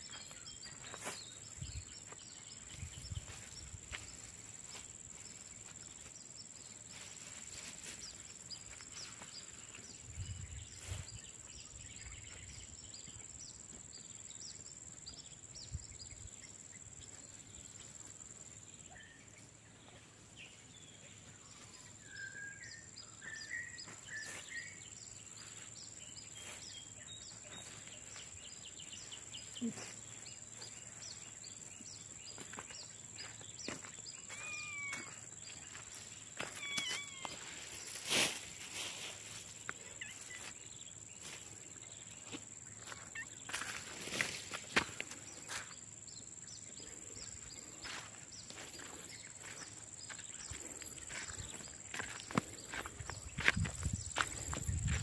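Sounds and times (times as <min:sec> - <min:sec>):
bird chirps: 0:00.0 - 0:06.9, 0:18.7 - 0:38.0, 0:39.0 - 0:55.0
insect drone and chirps: 0:00.0 - 0:55.0.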